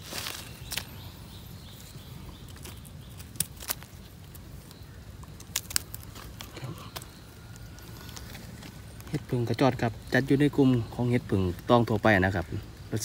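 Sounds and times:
footsteps rustling through leaves: 0.0s - 2.8s
twigs snapping: 0.0s - 9.4s.

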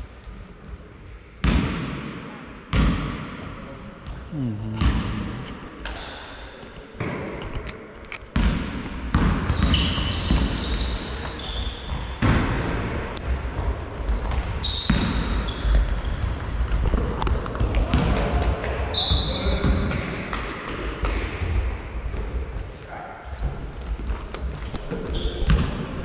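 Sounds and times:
sneakers squeaking on floor: 2.7s - 7.3s, 8.4s - 12.2s, 13.2s - 16.5s, 18.9s - 19.8s, 22.9s - 26.0s
players' voices: 4.0s - 7.2s
basketball bouncing: 8.3s - 18.8s, 24.8s - 26.0s.

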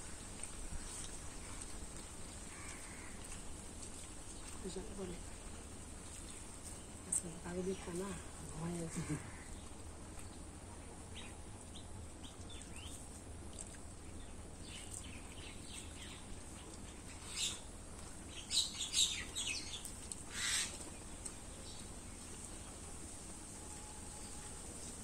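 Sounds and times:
small birds chirping: 0.8s - 22.8s.

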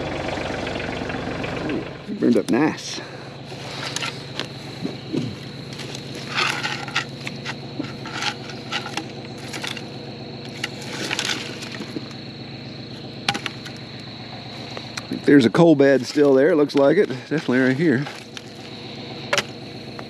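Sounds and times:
tractor engine idling: 0.0s - 20.0s
stick scraping through ash: 3.5s - 4.5s, 5.7s - 12.1s, 17.1s - 19.5s.

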